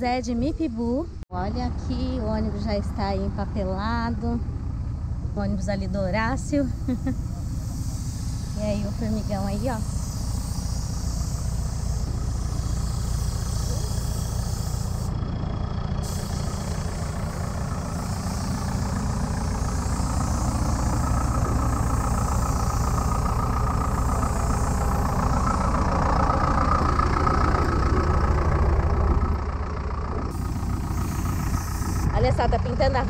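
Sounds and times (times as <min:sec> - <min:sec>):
diesel engine idling: 0:00.0 - 0:33.0
spray gun hissing: 0:06.1 - 0:28.2, 0:30.3 - 0:33.0.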